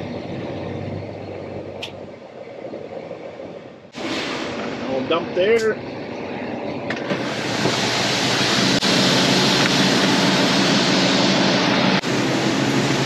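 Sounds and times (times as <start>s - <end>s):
low machinery hum: 0.0s - 13.0s
grain pouring rushing hiss: 4.0s - 5.0s, 7.1s - 13.0s.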